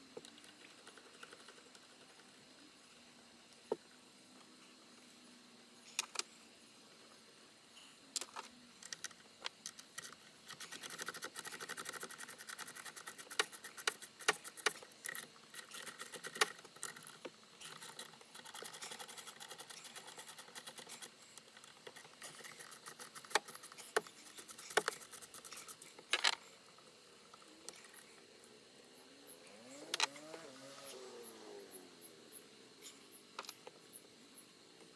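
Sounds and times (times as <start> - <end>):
hand ratchet clicking: 9.8 - 21.1.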